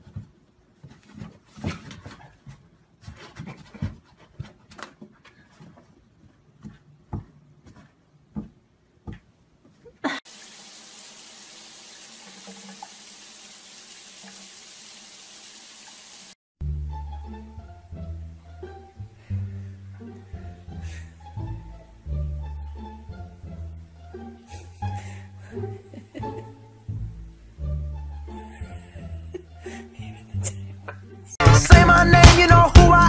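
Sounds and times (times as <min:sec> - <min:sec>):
water running into a bathtub: 0:10.2 - 0:16.4.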